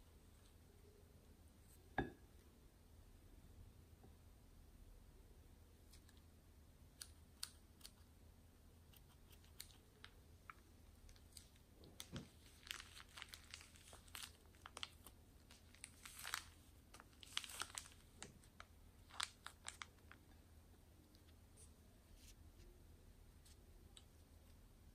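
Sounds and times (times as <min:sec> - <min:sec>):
plastic bag crinkling: 0:09.3 - 0:20.3.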